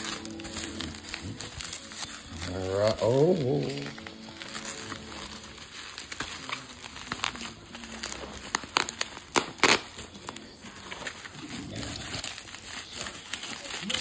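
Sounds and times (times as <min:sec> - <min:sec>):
bubble wrap crinkling: 0:00.0 - 0:14.0
sharp crackles: 0:00.0 - 0:14.0.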